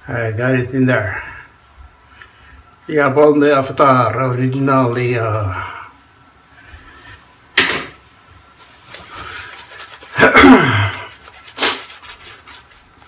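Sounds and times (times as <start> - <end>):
shaving brush strokes on stubble: 8.6 - 13.0.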